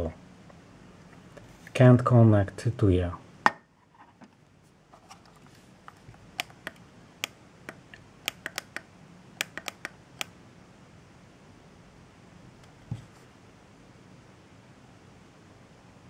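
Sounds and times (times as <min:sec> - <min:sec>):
plastic clicks and taps: 0:05.9 - 0:10.3.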